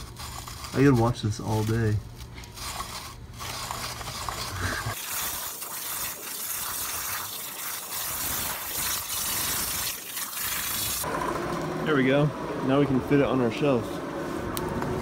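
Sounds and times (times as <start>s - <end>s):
waterjet hissing through metal: 4.6s - 11.0s.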